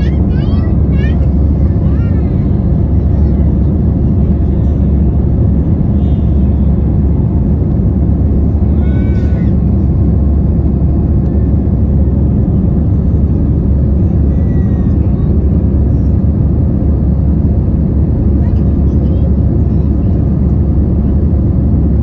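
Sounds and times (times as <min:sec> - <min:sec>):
jet engine thrust: 0:00.0 - 0:22.0
rushing air in cabin: 0:00.0 - 0:22.0.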